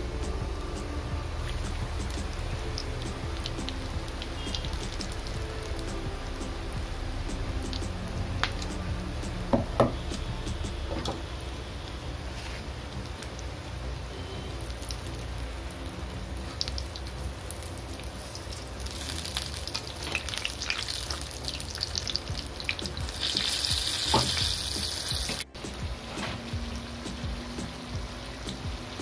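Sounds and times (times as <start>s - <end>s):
food deep-frying in hot oil: 11.9s - 25.5s.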